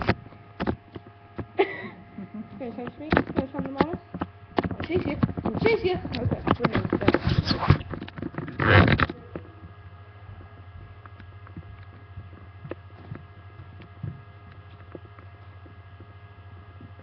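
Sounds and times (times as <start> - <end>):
low electrical hum: 0.0 - 17.0
webcam handling rustling and knocking: 2.9 - 9.5.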